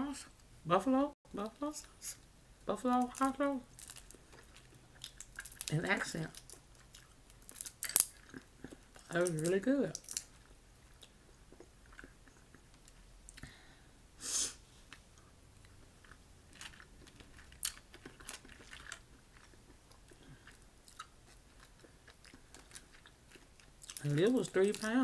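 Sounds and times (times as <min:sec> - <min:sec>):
shells cracking while peeled: 0:03.0 - 0:05.8, 0:06.4 - 0:10.3
faint chewing: 0:03.1 - 0:13.7, 0:14.8 - 0:25.0.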